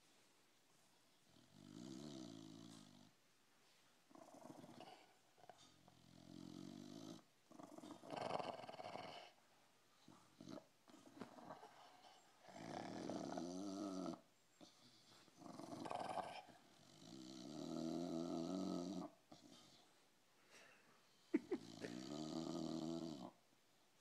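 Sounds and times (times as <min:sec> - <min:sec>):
dog snoring: 0:01.2 - 0:03.2, 0:04.1 - 0:09.4, 0:10.0 - 0:19.9, 0:21.4 - 0:23.4.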